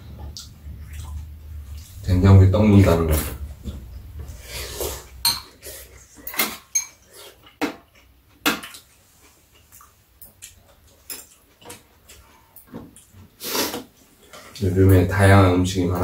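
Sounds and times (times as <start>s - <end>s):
utensils clinking on ceramic bowls: 5.2s - 7.1s.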